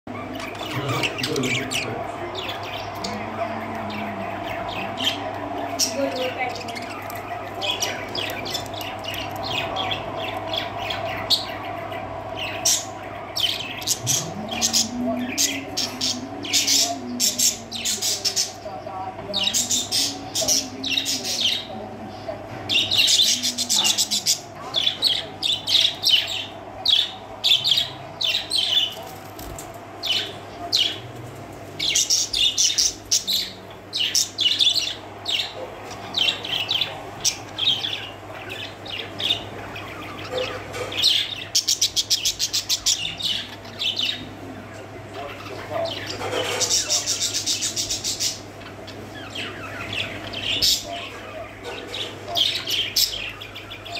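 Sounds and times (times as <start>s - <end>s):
budgerigars chirping and chattering: 0.1s - 31.1s, 31.8s - 53.9s
steady low hum: 0.1s - 53.9s.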